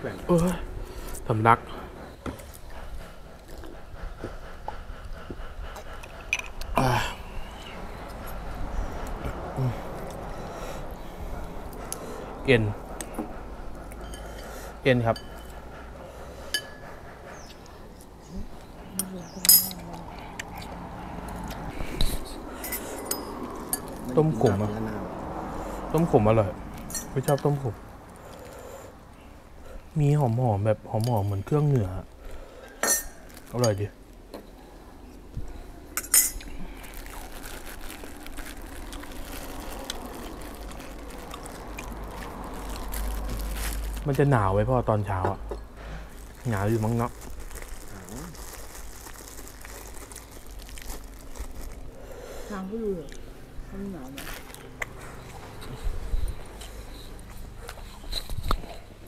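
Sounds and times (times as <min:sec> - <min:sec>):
spoons clinking on bowls: 0:32.8 - 0:33.9
sipping and chewing: 0:36.4 - 0:44.2, 0:46.0 - 0:52.0.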